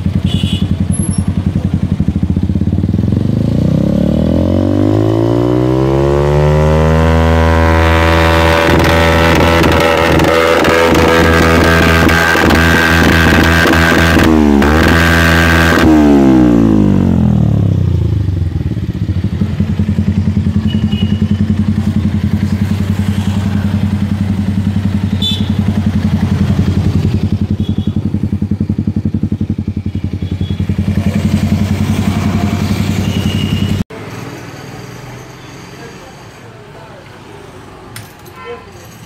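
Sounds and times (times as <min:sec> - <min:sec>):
motorcycle engine idling: 0:00.0 - 0:03.4, 0:17.6 - 0:33.8.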